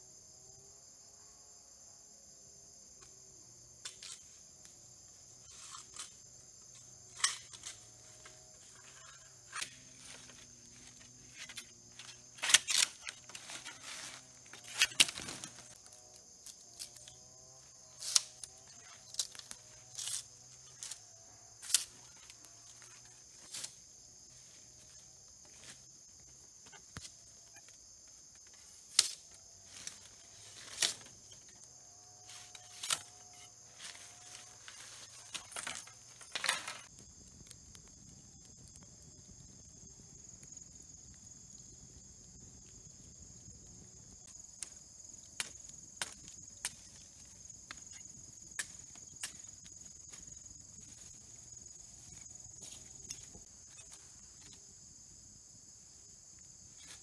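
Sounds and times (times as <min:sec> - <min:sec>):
insects humming: 0:00.0 - 0:57.0
bamboo knocks and cracks: 0:09.5 - 0:17.1, 0:28.9 - 0:31.4, 0:33.8 - 0:36.9, 0:45.4 - 0:46.9.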